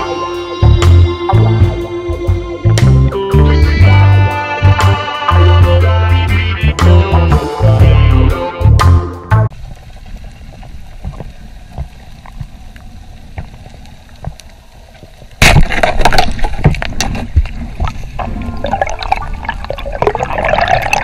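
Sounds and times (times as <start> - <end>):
reggae music: 0.0 - 9.5
low underwater rumble: 9.5 - 21.0
faint clicks: 9.7 - 15.4
gurgling bubbling water: 15.9 - 21.0.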